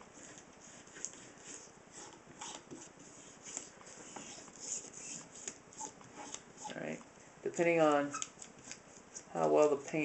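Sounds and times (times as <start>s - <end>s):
gloved fingers rubbing helmet: 0.2s - 6.8s.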